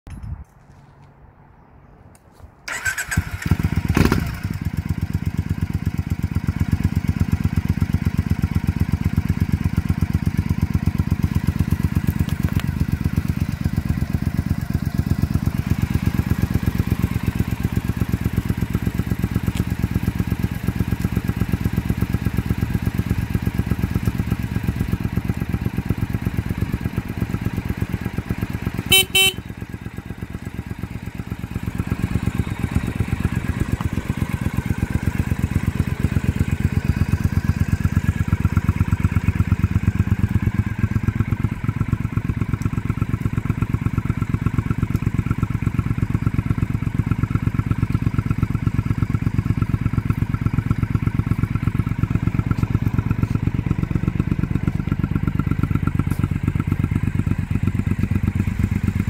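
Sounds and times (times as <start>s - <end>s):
motorcycle engine idling: 2.7s - 59.0s
motorcycle horn beep: 28.7s - 30.0s.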